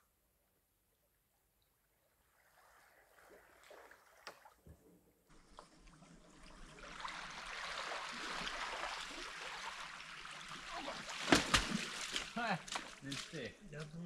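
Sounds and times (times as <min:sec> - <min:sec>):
river water rushing and gurgling: 0:05.3 - 0:13.4.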